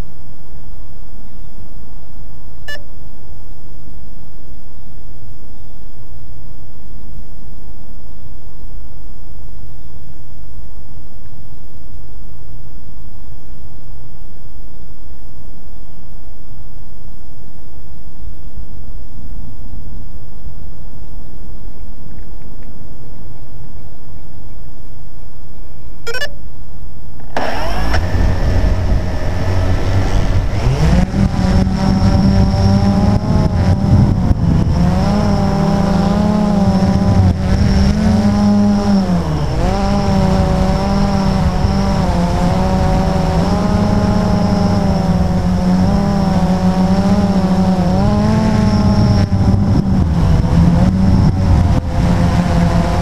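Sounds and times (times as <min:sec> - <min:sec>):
drone propellers buzzing whine: 0:25.8 - 0:53.0.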